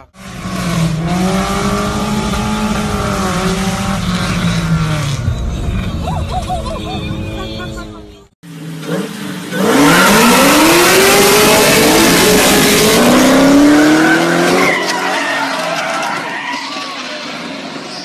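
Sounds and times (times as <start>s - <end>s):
car engine revving: 0.0s - 7.6s, 8.5s - 16.2s
tyres squealing: 13.8s - 17.4s.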